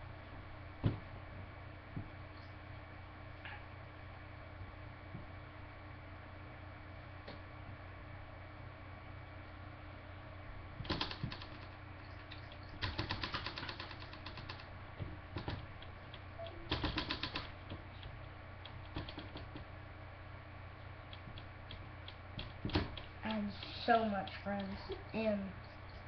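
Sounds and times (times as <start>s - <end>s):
steady low hum: 0.0s - 26.0s
marker tapping and scratching: 15.4s - 19.7s, 21.1s - 24.8s.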